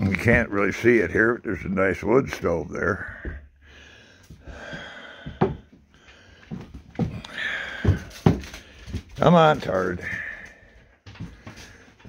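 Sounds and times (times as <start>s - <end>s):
breathing close to microphone: 3.0s - 9.2s, 10.0s - 12.0s.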